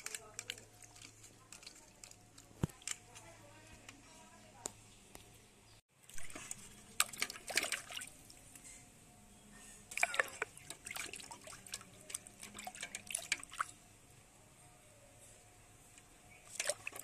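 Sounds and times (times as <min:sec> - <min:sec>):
water splashing in a steel pot: 0:06.0 - 0:08.4, 0:09.9 - 0:13.8, 0:16.3 - 0:17.0.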